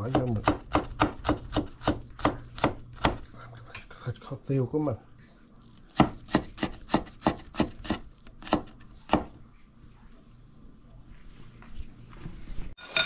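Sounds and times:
knife chopping garlic: 0:00.0 - 0:03.3, 0:05.9 - 0:09.4.

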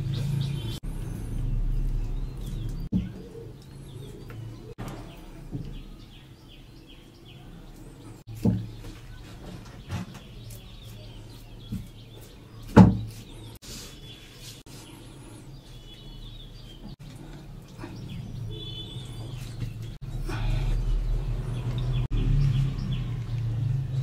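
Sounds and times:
knocks on wooden cutting board: 0:12.8 - 0:13.1.

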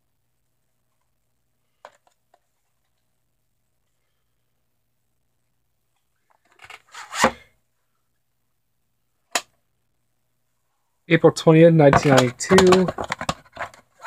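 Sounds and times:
plastic cassette case rattling: 0:12.0 - 0:14.0.

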